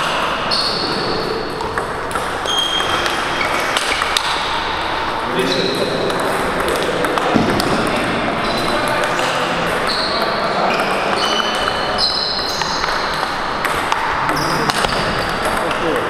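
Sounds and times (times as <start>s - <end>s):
shoe squeaks: 0.4s - 1.7s, 2.3s - 4.6s, 5.2s - 6.0s, 8.4s - 13.6s, 14.2s - 15.4s
ping pong ball clicking: 1.2s - 5.1s, 5.7s - 16.0s
background chatter: 4.9s - 16.0s.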